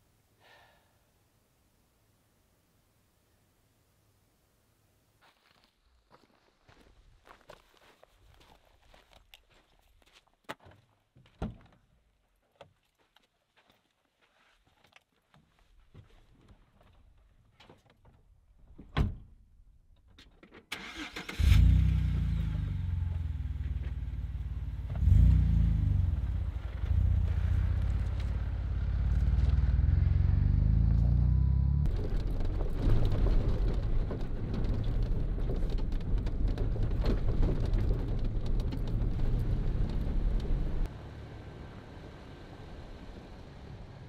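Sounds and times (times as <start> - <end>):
car engine starting and running: 20.7 - 34.3, 35.9 - 44.0.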